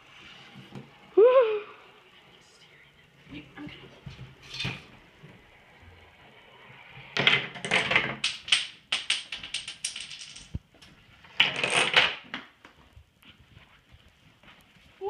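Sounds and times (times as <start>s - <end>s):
chain-reaction parts clicking and clattering: 7.6s - 10.6s.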